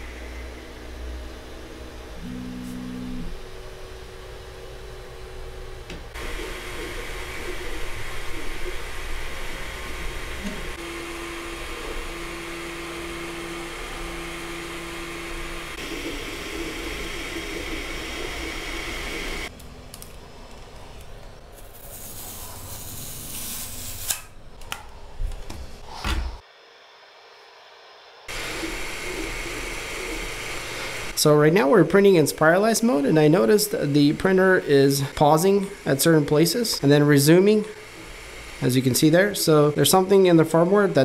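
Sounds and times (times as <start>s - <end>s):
stepper motor hum: 0.0s - 19.5s, 28.3s - 41.0s
cooling fans whirring: 0.0s - 41.0s.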